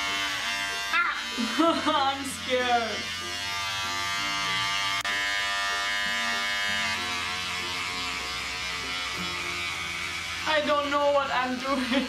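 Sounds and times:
electric hair clipper buzzing: 0:00.0 - 0:12.0.

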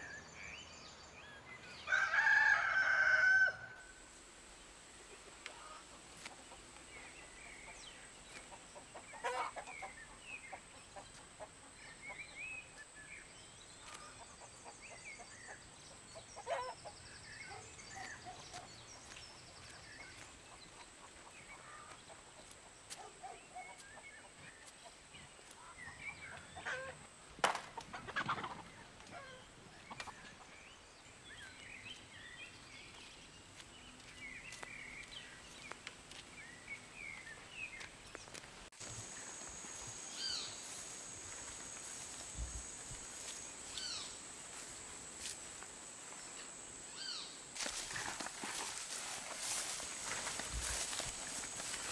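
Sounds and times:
small birds chirping: 0:04.6 - 0:26.9, 0:28.0 - 0:51.9
chickens clucking: 0:05.2 - 0:12.8, 0:13.9 - 0:23.0, 0:23.6 - 0:30.6.

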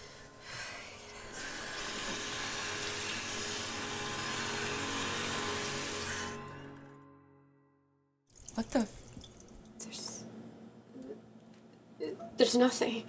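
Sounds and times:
tap water running into sink: 0:01.8 - 0:06.4, 0:08.3 - 0:09.7.

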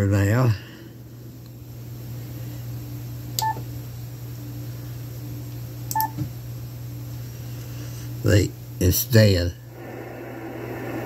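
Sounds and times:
steady low hum: 0:00.0 - 0:11.0
electronic key beeps: 0:03.4 - 0:03.6, 0:05.9 - 0:06.2
button clicks: 0:05.9 - 0:06.2.

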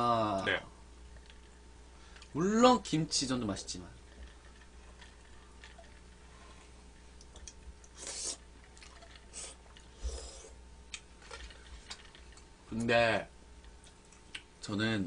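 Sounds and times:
chewing: 0:07.2 - 0:12.5
noodle slurp: 0:07.9 - 0:10.6.

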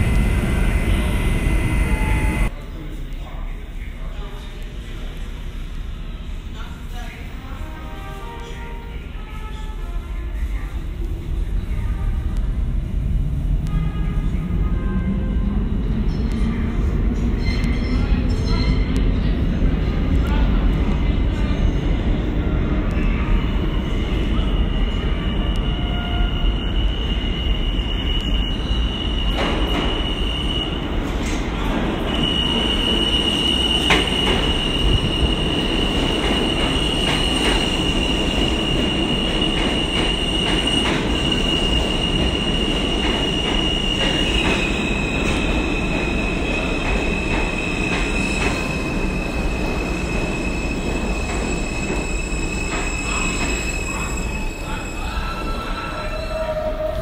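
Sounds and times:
subway train rumbling: 0:00.0 - 0:57.0
wheels squealing on rails: 0:23.0 - 0:57.0.

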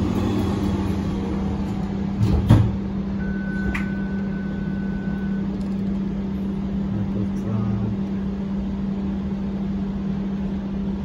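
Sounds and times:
streetcar interior hum: 0:00.0 - 0:11.0
steady beep: 0:03.2 - 0:05.6.

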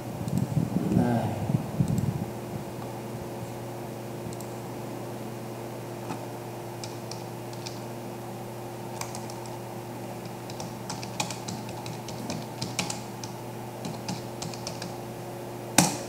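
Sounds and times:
low background hum: 0:00.0 - 0:16.0
keyboard typing: 0:06.8 - 0:07.8, 0:09.0 - 0:09.6, 0:10.2 - 0:15.0.

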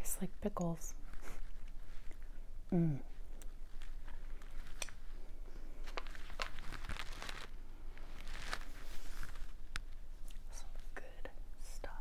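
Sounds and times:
packaging crinkling: 0:03.3 - 0:10.5.

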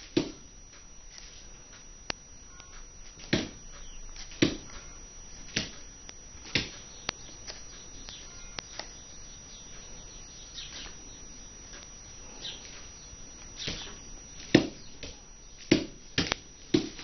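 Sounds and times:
sharp clicks: 0:03.6 - 0:12.0.

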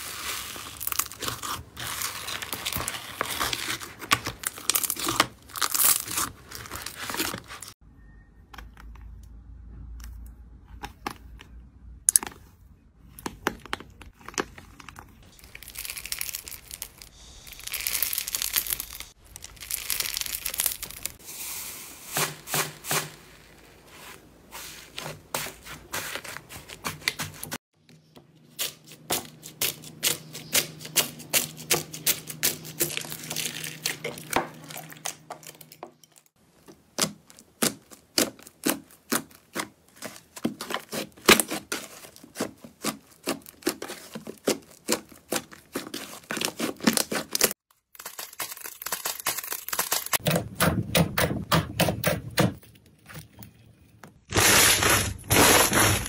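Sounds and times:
slime crackling and tearing: 0:00.0 - 0:07.7, 0:14.1 - 0:21.2, 0:36.9 - 0:50.2, 0:54.3 - 0:56.0.

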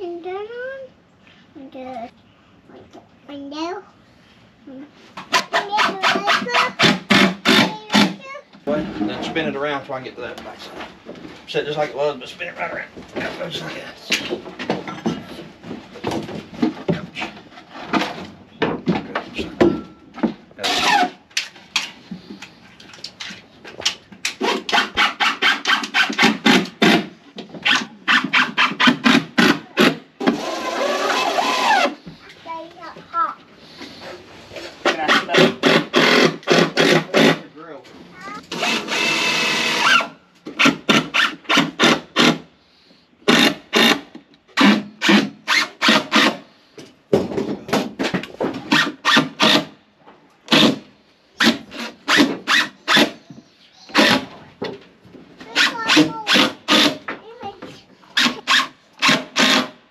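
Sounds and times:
wood rubbing and scraping: 0:08.6 - 0:40.0.

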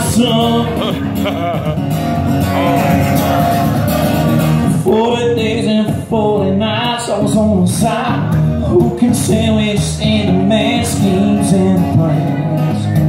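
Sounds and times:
song with singing voice: 0:00.0 - 0:13.0.

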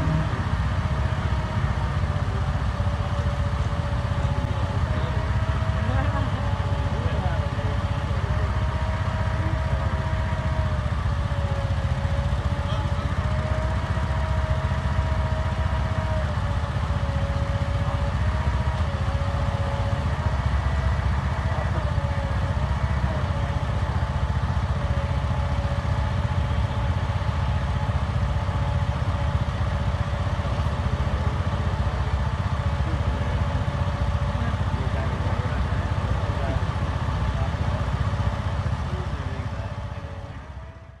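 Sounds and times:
thin wavering whine: 0:00.0 - 0:10.9
engine idling: 0:00.0 - 0:41.0.

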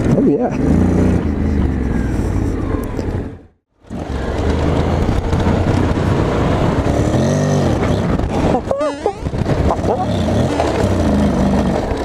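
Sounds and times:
wind noise: 0:00.0 - 0:12.0
motorcycle engine running: 0:03.8 - 0:12.0
tyre noise: 0:03.9 - 0:12.0.

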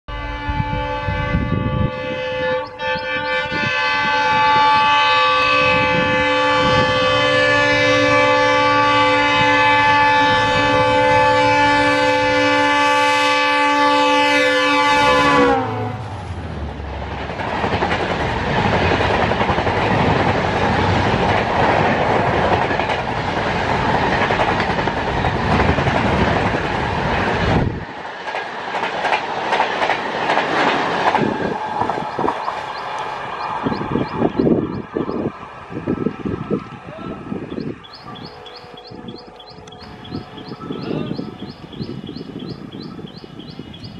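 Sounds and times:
locomotive horn blast: 0:00.1 - 0:16.2, 0:31.3 - 0:43.9
train coaches clickety-clack: 0:02.6 - 0:43.9.

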